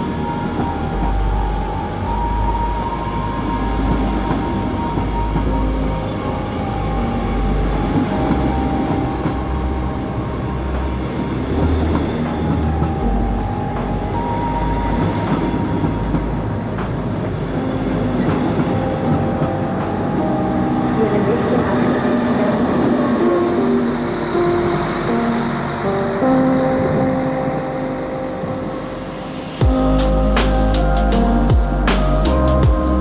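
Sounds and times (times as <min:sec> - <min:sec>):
train wheels rumbling on rail: 0:00.0 - 0:26.2.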